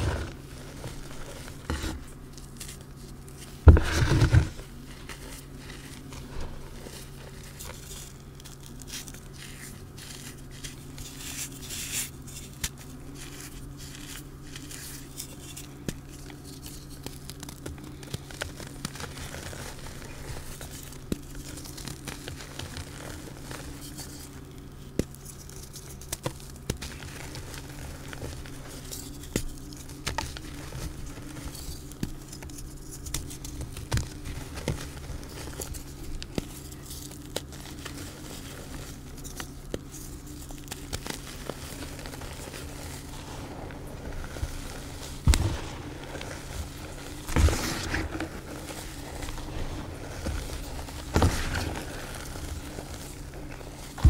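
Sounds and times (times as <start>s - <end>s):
chalk crunching and crackling: 0.0s - 54.0s
steady low hum: 0.0s - 54.0s.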